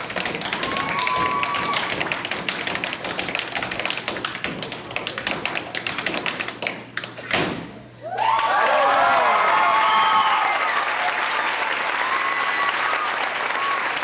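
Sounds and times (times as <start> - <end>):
audience whooping and cheering: 0.4 - 2.2, 8.0 - 14.0.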